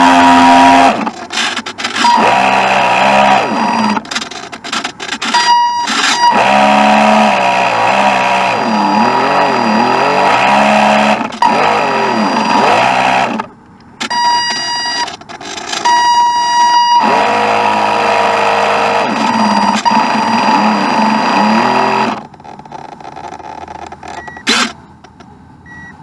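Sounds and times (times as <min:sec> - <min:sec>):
model boat motor whine: 0:00.0 - 0:01.2, 0:02.0 - 0:04.1, 0:06.2 - 0:13.5, 0:17.0 - 0:23.6.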